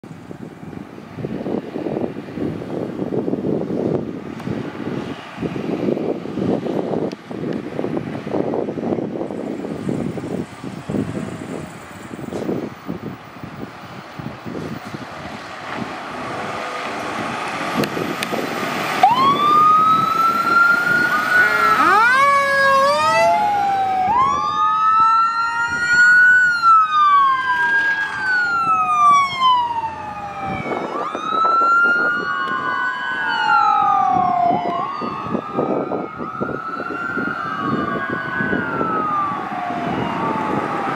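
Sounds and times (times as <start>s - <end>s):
road noise: 0.0s - 40.9s
truck engine: 7.8s - 31.3s
electronic wail sirens: 17.8s - 40.9s
mechanical siren: 19.0s - 40.9s.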